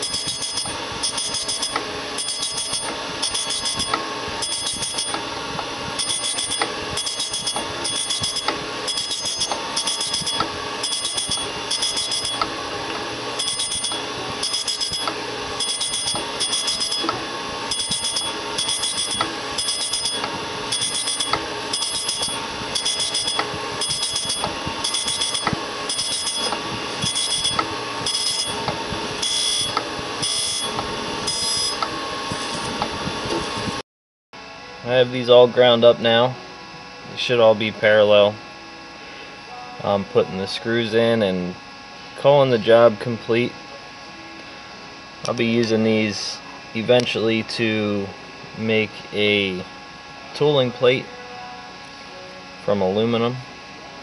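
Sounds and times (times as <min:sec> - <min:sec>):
grinding wheel ringing hiss: 0:00.0 - 0:32.9
machine running: 0:00.0 - 0:33.8.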